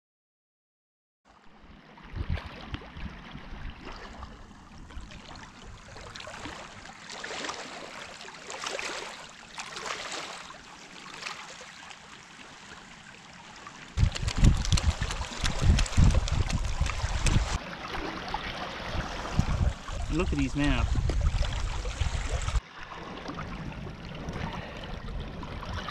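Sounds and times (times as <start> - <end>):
waves lapping on rocks: 5.0 - 12.7, 13.7 - 25.9.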